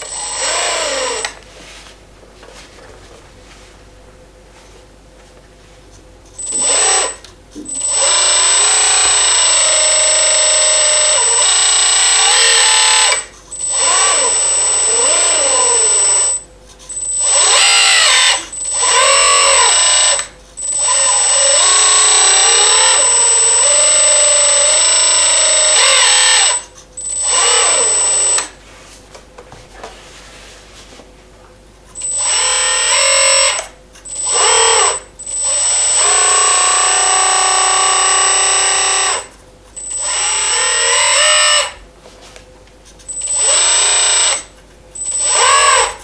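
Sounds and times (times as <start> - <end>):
electric motor and pump whining: 0.0 - 1.4, 6.4 - 28.6, 32.0 - 41.8, 43.1 - 46.0.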